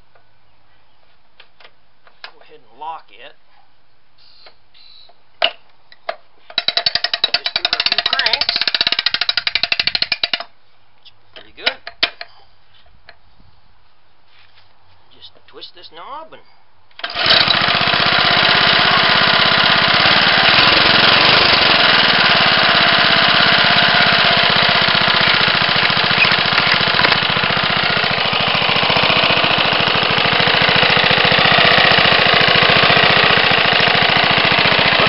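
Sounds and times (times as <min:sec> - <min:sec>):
lawn mower engine running: 0:06.6 - 0:10.4, 0:17.0 - 0:35.0.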